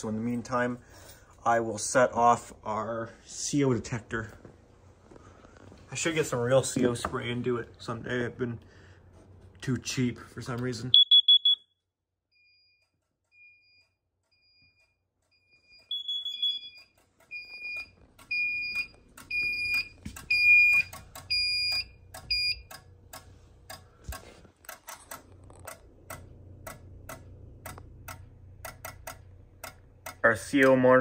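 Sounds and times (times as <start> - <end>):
carbon monoxide detector beeping: 10.9 - 22.9.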